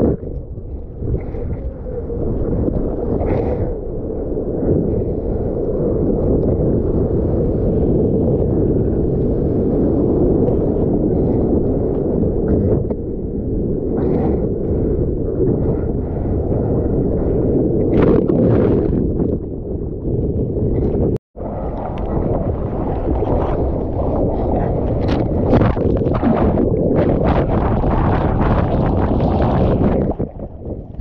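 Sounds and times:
surf rushing: 21.4s - 30.6s
water splashes: 21.6s - 31.0s.

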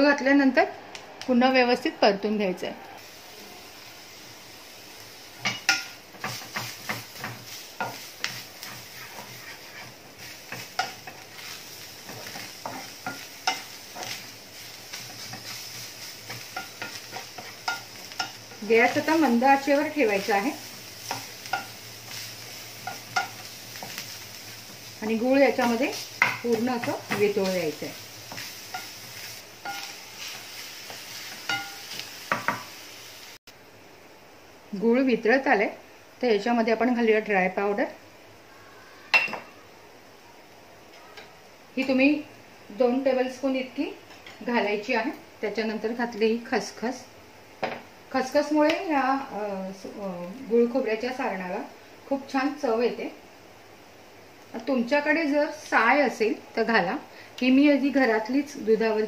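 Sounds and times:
steady sizzle: 0.0s - 59.0s
spatula knocking and scraping pan: 5.4s - 14.3s, 14.9s - 32.7s.

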